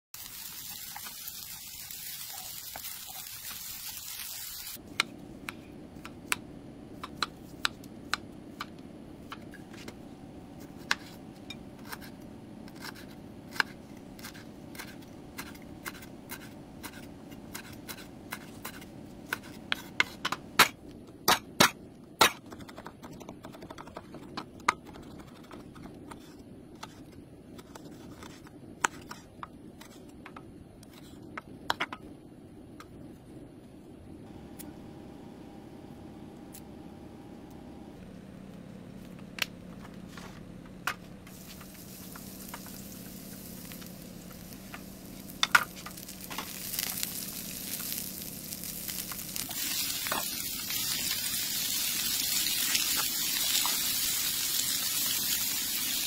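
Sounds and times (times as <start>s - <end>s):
rice sizzling in a frying pan: 0.2s - 4.8s, 41.3s - 56.0s
spatula turning food: 41.3s - 56.0s.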